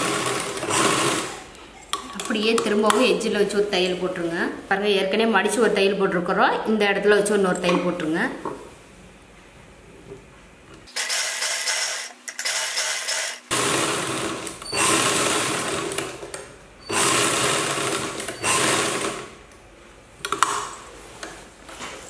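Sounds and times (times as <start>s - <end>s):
sewing machine stitching: 0.0s - 1.4s, 10.9s - 16.2s, 16.9s - 19.3s.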